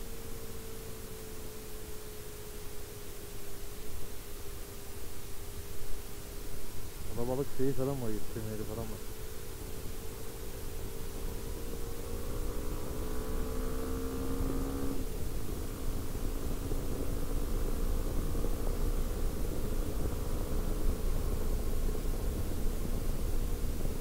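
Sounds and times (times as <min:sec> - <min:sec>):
motorcycle engine running: 0:08.7 - 0:24.0
wind rumble on microphone: 0:15.0 - 0:24.0.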